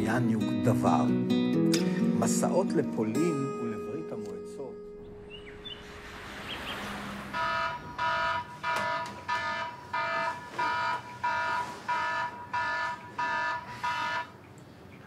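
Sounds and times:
electronic alarm beeping: 7.3s - 14.3s.

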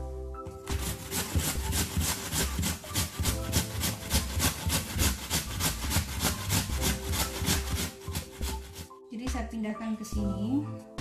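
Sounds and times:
potato grated on metal grater: 0.7s - 8.9s.

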